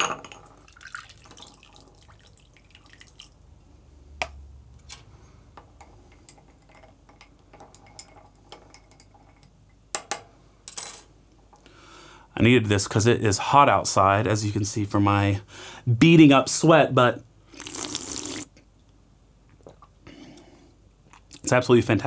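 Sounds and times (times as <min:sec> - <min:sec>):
coffee trickling over ice: 0:00.7 - 0:03.4.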